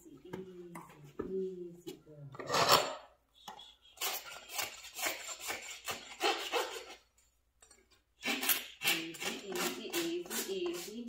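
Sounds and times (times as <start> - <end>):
hoof rasp scraping hoof: 2.4 - 3.1, 4.0 - 7.1.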